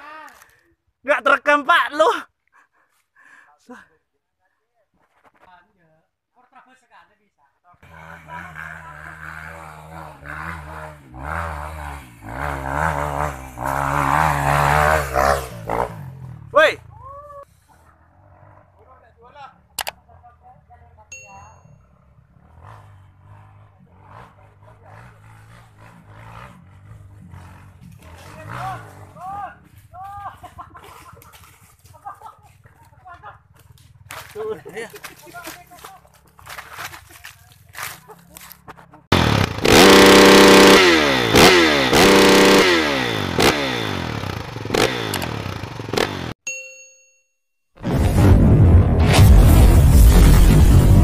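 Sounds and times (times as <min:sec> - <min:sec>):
distant motorcycle engine revving: 0:07.8 - 0:17.1, 0:21.8 - 0:29.8, 0:39.0 - 0:46.4.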